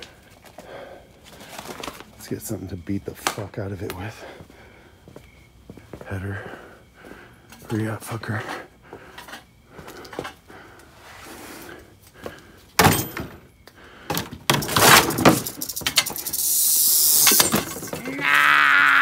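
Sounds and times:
objects dropped on concrete floor: 12.8s - 13.5s, 14.1s - 18.2s
rattlesnake rattling: 14.6s - 18.4s.

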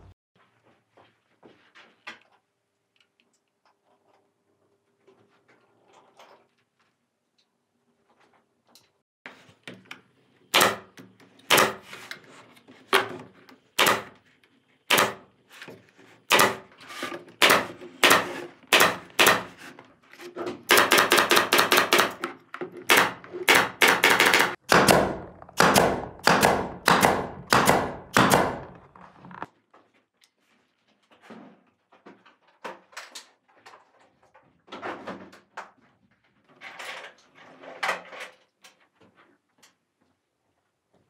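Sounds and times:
pneumatic nail gun firing: 10.5s - 10.9s, 11.5s - 11.9s, 13.8s - 14.2s, 14.9s - 15.3s, 16.3s - 16.7s, 17.4s - 19.6s, 20.7s - 22.2s, 22.9s - 28.7s.

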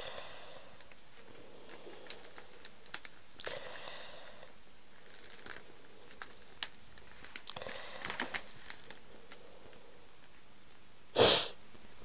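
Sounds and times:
cellophane crinkling: 0.8s - 3.6s, 4.9s - 9.5s.

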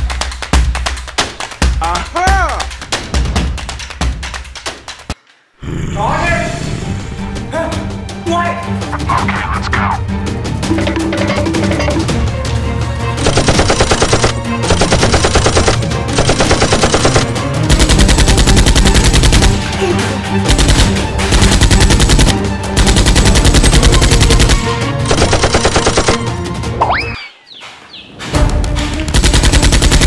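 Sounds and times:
background music: 0.0s - 30.0s
machine-gun fire: 13.2s - 19.6s, 20.5s - 26.3s, 29.1s - 30.0s.

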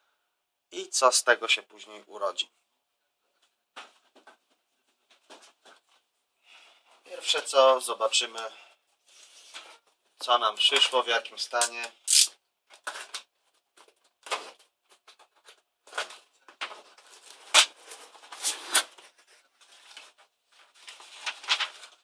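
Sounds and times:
paper rustling: 12.8s - 22.0s.

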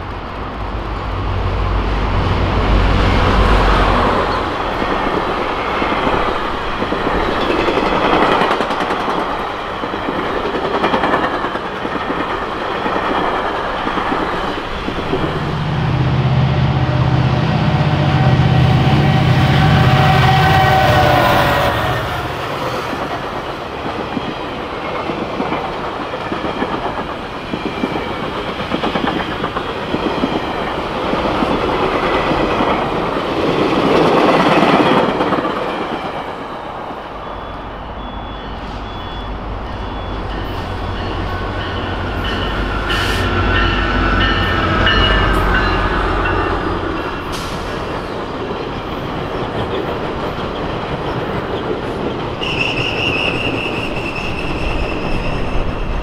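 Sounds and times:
low train rumble: 0.0s - 56.0s
high wheel squeal: 37.2s - 47.9s, 52.4s - 56.0s.

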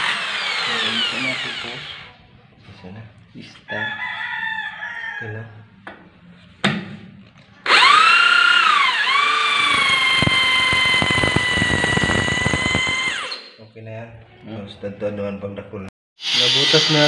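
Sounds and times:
electric drill boring into concrete: 0.0s - 2.1s, 7.6s - 13.6s, 16.2s - 17.0s.

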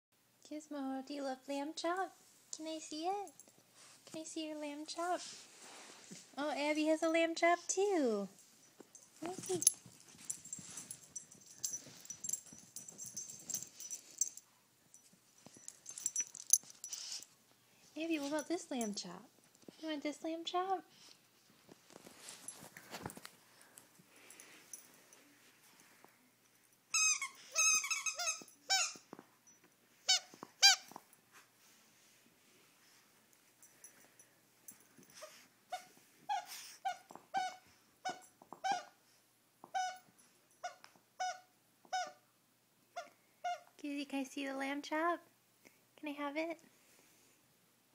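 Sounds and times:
clicks and rustles: 8.6s - 17.3s, 21.6s - 25.2s
dog toy squeaking: 26.9s - 29.0s, 30.1s - 31.0s, 35.2s - 39.0s, 39.6s - 42.2s, 43.0s - 43.7s.

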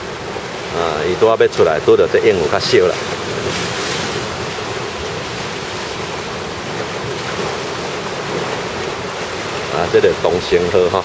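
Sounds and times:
rough sea waves: 0.0s - 11.0s
strong wind buffeting microphone: 0.0s - 11.0s.

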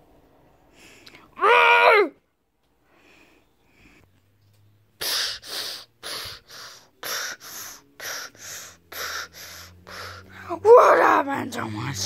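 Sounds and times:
person gasping breaths: 5.0s - 10.5s.

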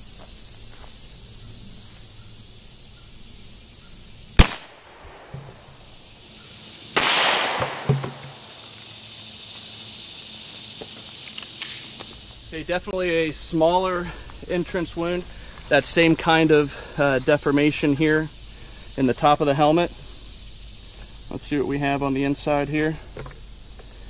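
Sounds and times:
insects humming: 0.0s - 24.0s
suppressed gunshot: 4.4s - 5.7s, 7.0s - 8.5s.

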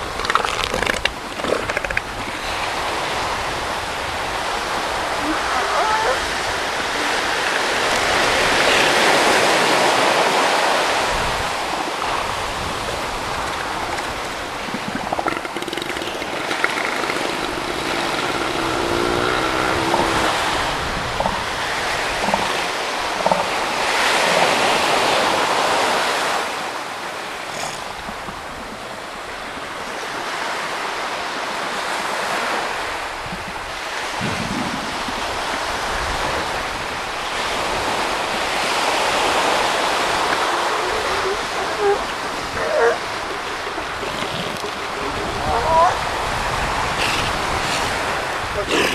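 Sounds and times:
ocean surf washing ashore: 0.0s - 48.9s
seals grunting: 0.8s - 26.4s, 36.2s - 48.9s.

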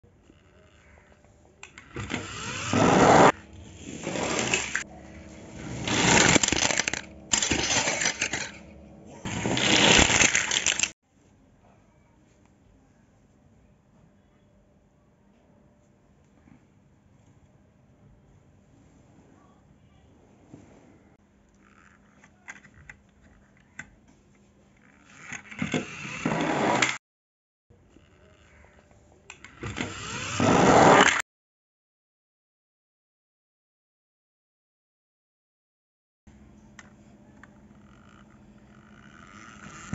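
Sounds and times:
plastic toys rattling and scraping: 3.8s - 11.0s, 21.6s - 26.2s, 37.8s - 39.9s.

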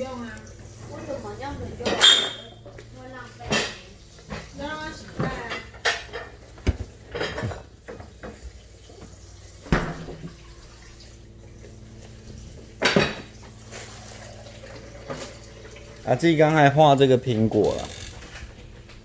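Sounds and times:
kitchen items clattering: 0.0s - 9.1s, 12.4s - 15.6s.

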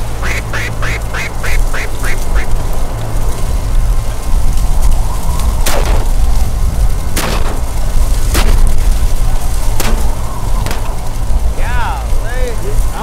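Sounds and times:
wind buffeting microphone: 0.0s - 13.0s
shotgun shots: 5.6s - 6.0s, 7.2s - 7.6s, 8.3s - 8.8s, 9.8s - 11.0s.

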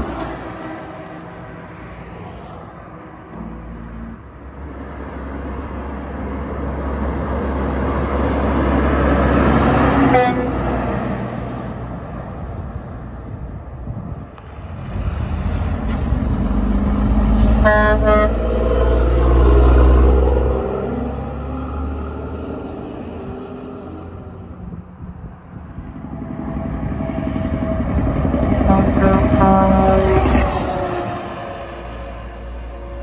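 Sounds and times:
diesel trucks passing: 0.0s - 33.0s
air horn blasts: 10.0s - 10.8s, 17.4s - 18.6s, 28.6s - 31.1s.

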